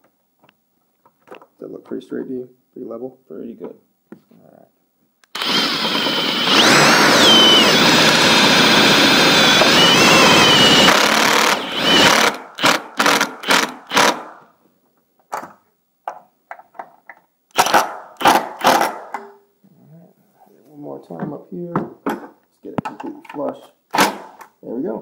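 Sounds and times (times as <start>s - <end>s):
cordless power driver running: 5.2s - 14.2s.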